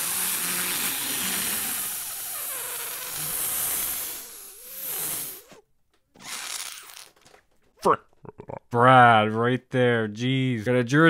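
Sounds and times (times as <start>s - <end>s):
steady hiss: 0.0s - 5.5s.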